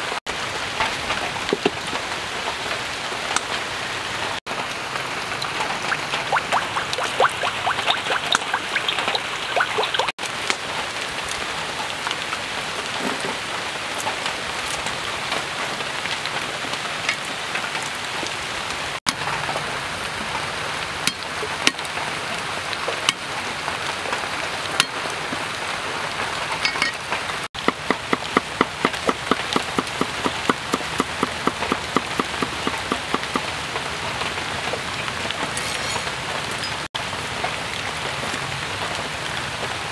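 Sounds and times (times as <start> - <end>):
cleaver chopping on wooden board: 27.6 - 33.4.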